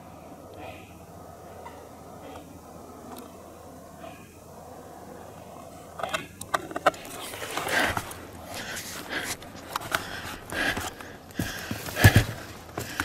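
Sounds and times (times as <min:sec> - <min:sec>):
footsteps crunching on forest floor: 0:07.1 - 0:13.0.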